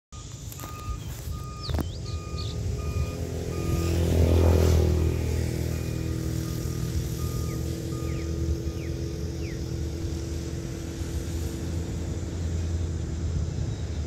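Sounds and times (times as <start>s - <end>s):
short electronic beeps: 0.2s - 4.1s, 4.9s - 9.7s
diesel locomotive engine hum: 0.2s - 14.0s
bird chirping: 0.6s - 3.2s, 7.3s - 9.8s.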